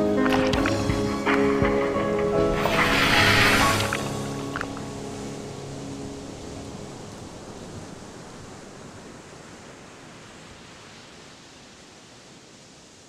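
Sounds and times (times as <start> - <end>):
sea surf hissing: 2.4 - 6.3.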